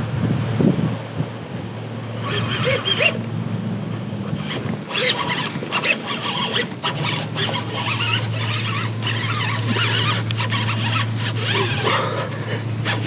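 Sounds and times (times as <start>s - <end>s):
fishing reel gear drone: 1.9s - 13.0s.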